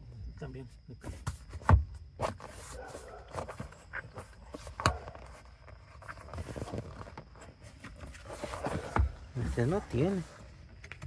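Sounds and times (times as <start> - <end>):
hands rustling on a car seat: 2.2 - 10.6.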